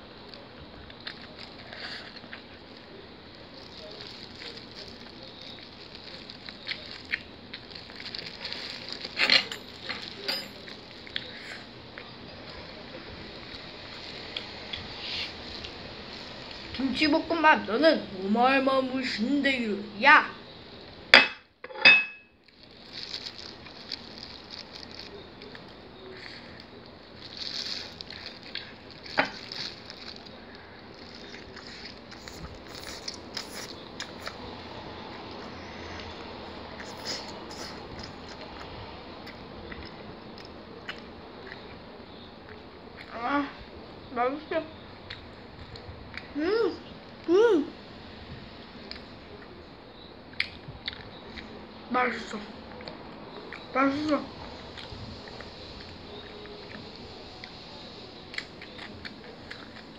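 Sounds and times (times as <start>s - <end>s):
chicken crackling as pulled apart: 0.2s - 11.6s, 22.5s - 34.6s
plastic glove crinkling: 0.3s - 11.3s, 22.4s - 34.5s.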